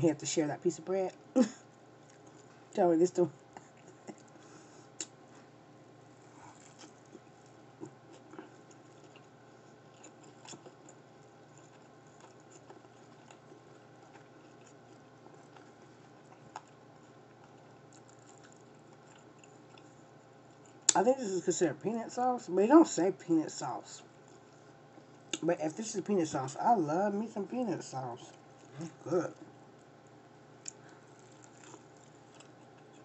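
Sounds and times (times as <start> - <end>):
quiet steady hiss: 0.0 - 33.0
faint chewing mouth clicks: 5.0 - 5.2, 6.4 - 21.0, 30.6 - 33.0.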